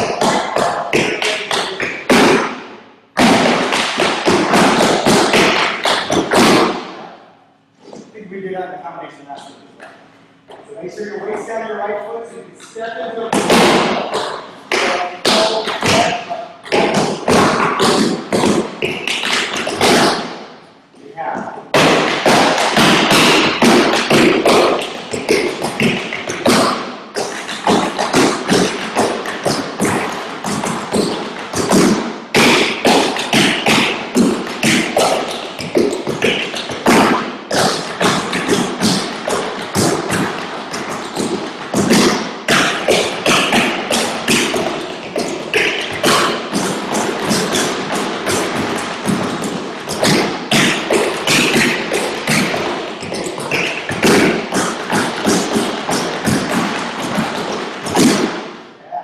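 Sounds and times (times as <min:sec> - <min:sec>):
tap shoes on wooden boards: 0:13.3 - 0:20.3, 0:21.7 - 0:58.4.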